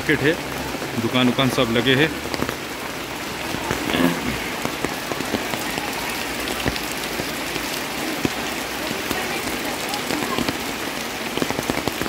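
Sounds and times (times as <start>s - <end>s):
rain on ground and awnings: 0.0s - 12.0s.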